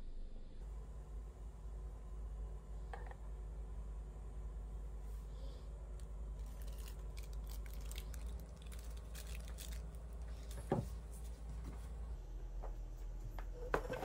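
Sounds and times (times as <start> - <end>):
plastic packaging crinkling: 6.4 - 10.6.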